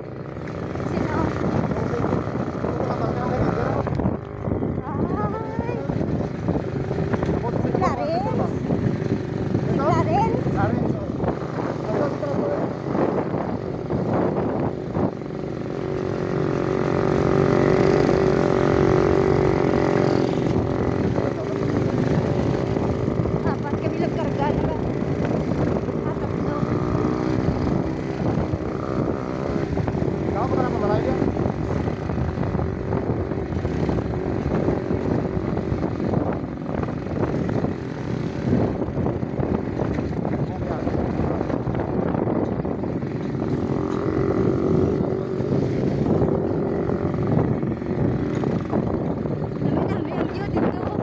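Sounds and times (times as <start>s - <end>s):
motorcycle engine running: 0.0s - 51.0s
road rumble: 0.0s - 51.0s
wind on microphone: 0.0s - 51.0s.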